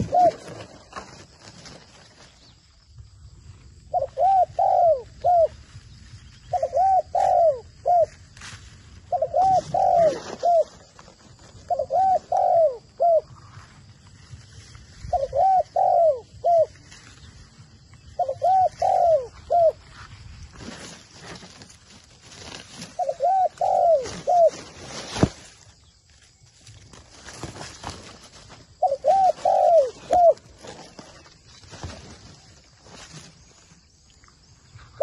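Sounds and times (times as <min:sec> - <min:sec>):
dove cooing: 0:00.0 - 0:01.7, 0:03.8 - 0:05.6, 0:06.4 - 0:08.2, 0:09.0 - 0:13.7, 0:15.0 - 0:16.9, 0:18.0 - 0:19.9, 0:22.3 - 0:25.3, 0:27.4 - 0:31.3.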